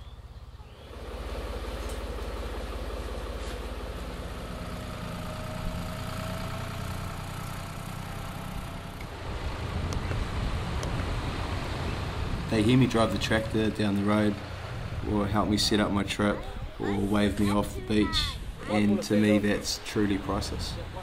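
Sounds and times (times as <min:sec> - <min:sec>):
tractor engine running: 0:00.0 - 0:15.1.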